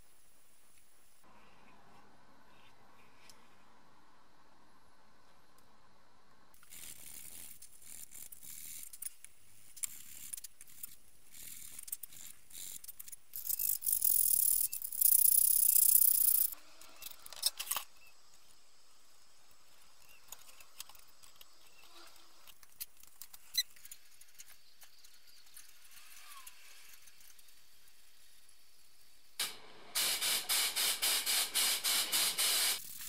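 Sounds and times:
loud scratchy hiss: 0:29.4 - 0:33.0.

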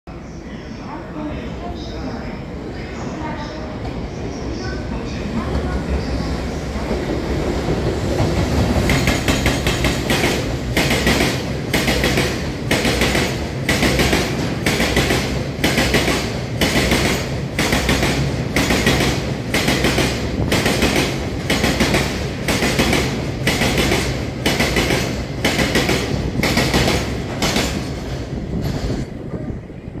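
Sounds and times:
train rumble: 0:00.1 - 0:30.0
train wheels clacking over rail joints: 0:08.2 - 0:29.0.

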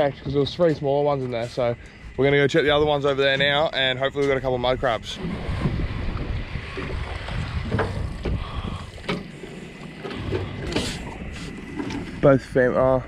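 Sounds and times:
boat motor rumble: 0:00.0 - 0:13.0
wind buffeting microphone: 0:00.0 - 0:13.0.

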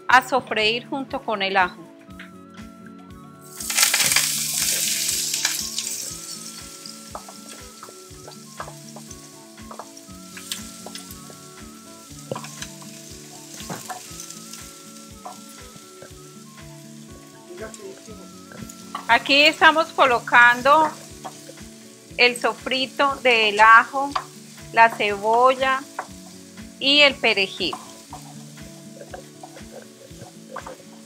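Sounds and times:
vegetables sizzling in hot oil: 0:03.4 - 0:31.0
stirring clicks and scrapes: 0:27.7 - 0:31.0.

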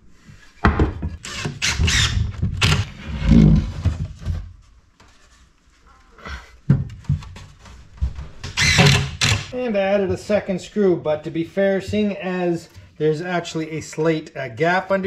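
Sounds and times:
wood knocking and scraping: 0:00.2 - 0:05.6, 0:06.6 - 0:10.5.

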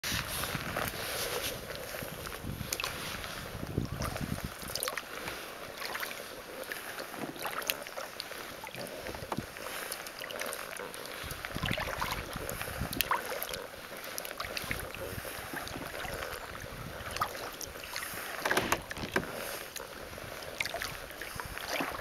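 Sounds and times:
wind on microphone: 0:00.0 - 0:05.4, 0:11.1 - 0:13.7, 0:14.4 - 0:22.0
kayak paddle splashing water: 0:00.0 - 0:22.0.

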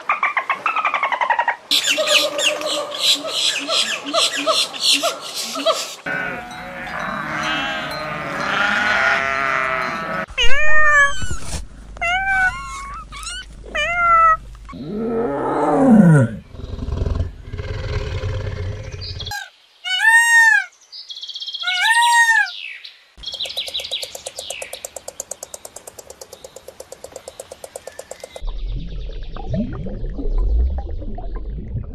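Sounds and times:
tiger roaring: 0:14.7 - 0:19.3.

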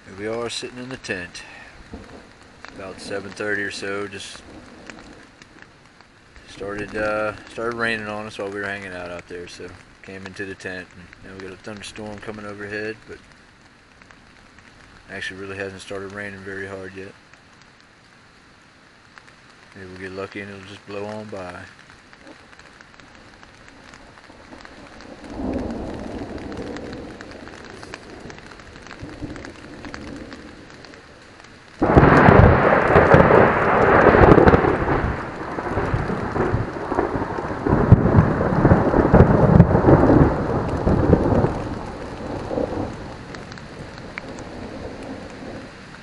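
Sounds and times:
thunder rumbling: 0:00.0 - 0:13.4, 0:19.9 - 0:46.0
rain pattering on tent fabric: 0:00.0 - 0:46.0
loud thunderclap: 0:24.2 - 0:30.8, 0:31.8 - 0:45.7.

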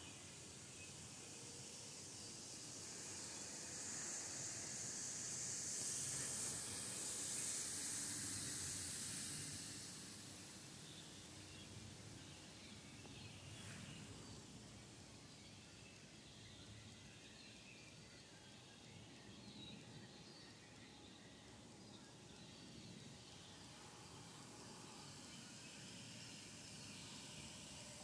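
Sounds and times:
soft high hiss: 0:00.0 - 0:18.1.

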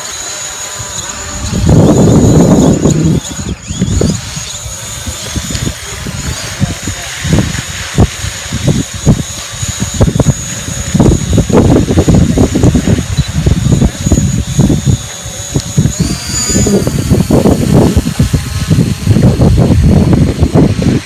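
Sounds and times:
drone propellers whining: 0:00.0 - 0:21.0
wind on microphone: 0:00.0 - 0:21.0.

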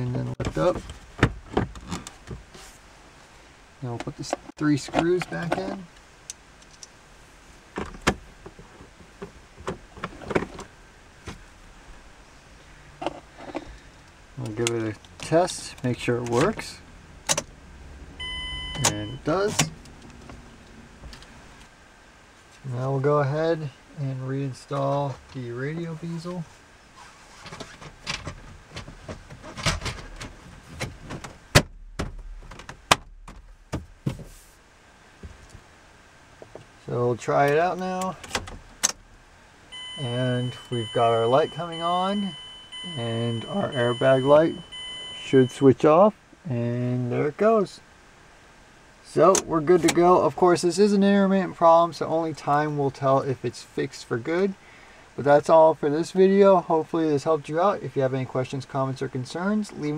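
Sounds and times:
knocks and rustles: 0:00.4 - 0:02.8, 0:07.7 - 0:11.5, 0:27.0 - 0:34.6.

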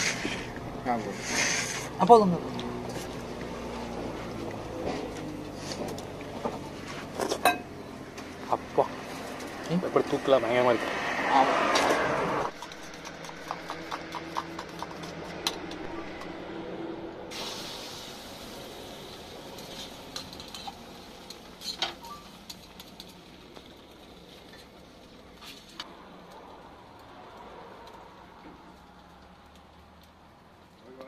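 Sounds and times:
oil sizzling on griddle: 0:02.7 - 0:10.1, 0:17.3 - 0:25.8
dishes and cutlery clinking: 0:07.3 - 0:07.7.

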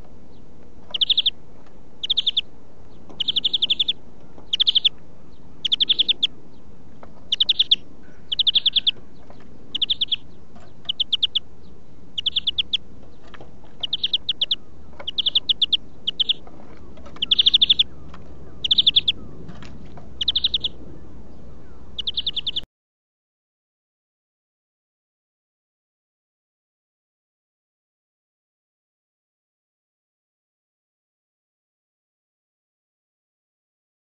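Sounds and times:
bird song with fast trills: 0:00.2 - 0:22.7.

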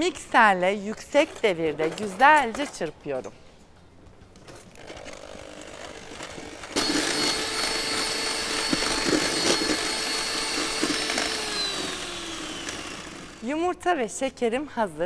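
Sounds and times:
electric hand mixer whine: 0:05.6 - 0:13.4.

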